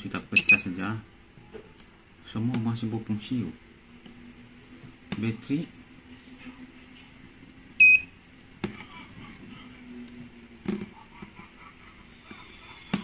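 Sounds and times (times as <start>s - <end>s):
high electronic beep: 0.4s - 0.6s.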